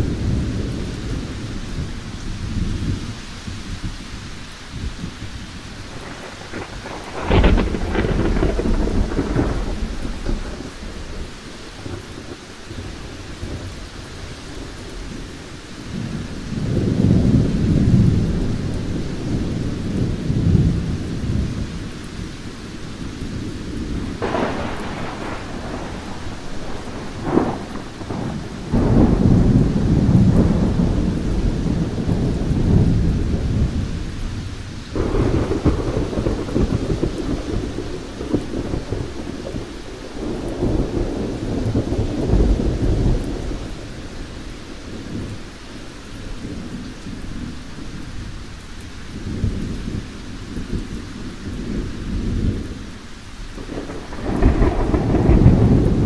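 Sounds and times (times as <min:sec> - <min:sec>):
rain falling: 0:00.0 - 0:56.0
thunder rolling: 0:04.8 - 0:13.8, 0:22.6 - 0:45.5, 0:53.5 - 0:56.0.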